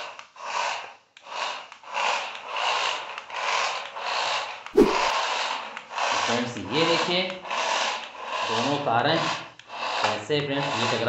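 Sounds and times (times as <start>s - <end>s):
toy car motors whirring: 0.0s - 11.0s
sharp knock: 4.8s - 5.1s.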